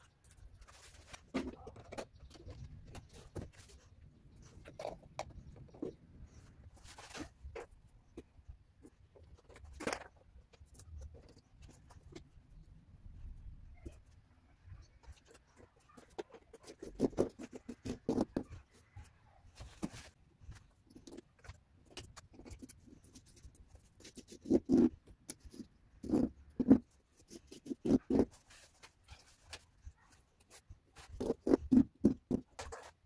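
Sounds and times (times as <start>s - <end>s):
plastic clicking and scraping on tile: 15.0s - 20.0s.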